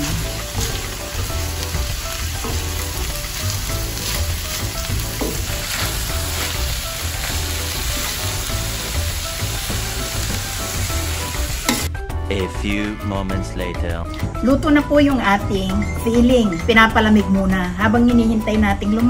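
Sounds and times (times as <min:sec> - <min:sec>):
food sizzling in a wok: 0:00.0 - 0:11.9.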